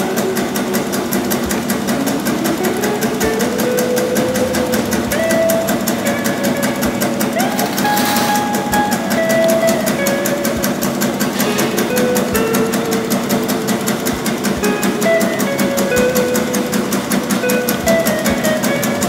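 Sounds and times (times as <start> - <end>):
fast even ticking: 0.0 - 19.0.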